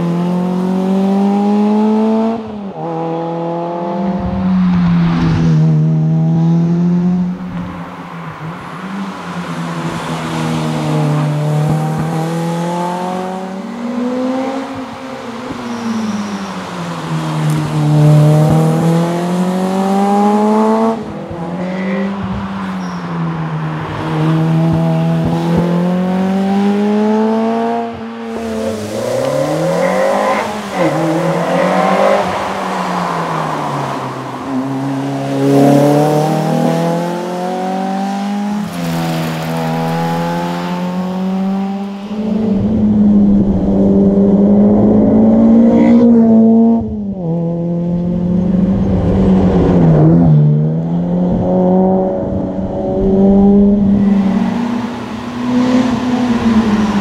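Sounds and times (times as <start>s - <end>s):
car engine revving hard: 17.5s - 22.3s, 23.8s - 57.0s.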